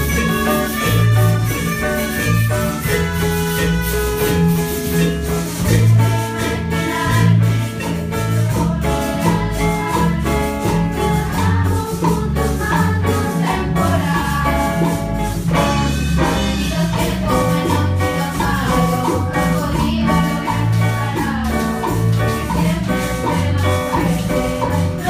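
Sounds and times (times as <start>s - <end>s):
students singing in unison: 0.0s - 3.7s, 5.5s - 15.1s
drum kit: 0.0s - 25.0s
electric bass: 0.0s - 25.0s
hand percussion: 0.0s - 25.0s
melodicas playing melody: 0.0s - 25.0s.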